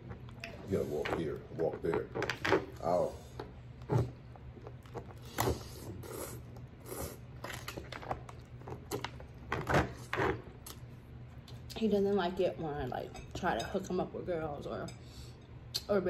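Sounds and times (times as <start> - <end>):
low steady hum: 0.0 - 16.0
person chewing and slurping noodles: 3.8 - 9.4.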